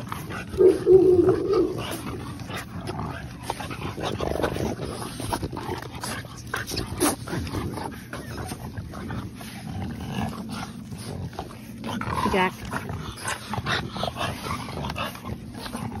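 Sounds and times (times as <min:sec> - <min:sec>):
puppies clicking and rustling: 0:00.0 - 0:16.0
dog whining: 0:00.3 - 0:02.5.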